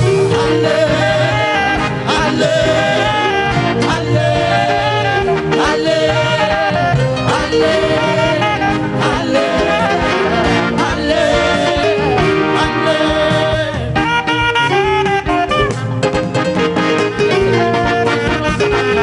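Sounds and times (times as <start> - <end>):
person singing: 0.0 - 14.4
bass guitar: 0.0 - 19.0
drum kit: 0.0 - 19.0
saxophone lead: 0.0 - 19.0.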